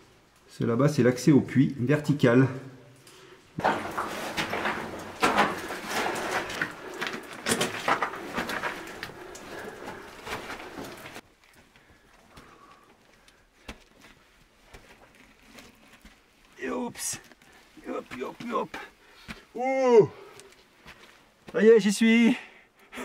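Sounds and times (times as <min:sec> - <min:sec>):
scraping and rustling over rock: 0:03.6 - 0:19.4.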